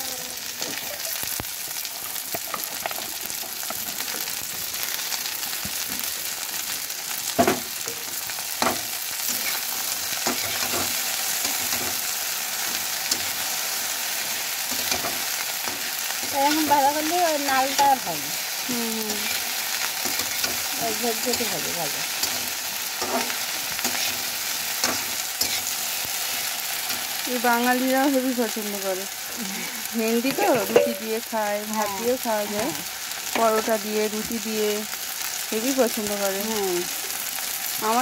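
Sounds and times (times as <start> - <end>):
vegetables sizzling in oil: 0.0 - 38.0
person speaking: 27.3 - 32.8.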